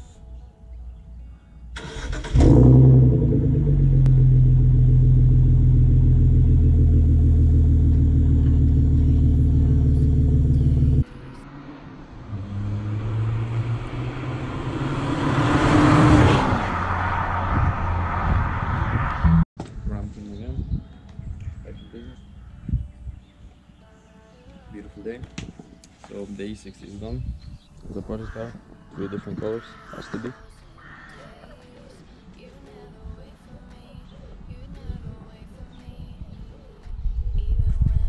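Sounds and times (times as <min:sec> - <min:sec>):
car engine starting and idling: 0:01.7 - 0:18.2.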